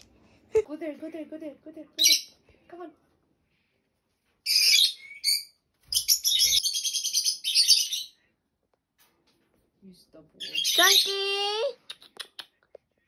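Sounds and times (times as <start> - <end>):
parrot chirping and screeching: 2.0 - 2.4, 4.4 - 8.2, 10.4 - 11.6.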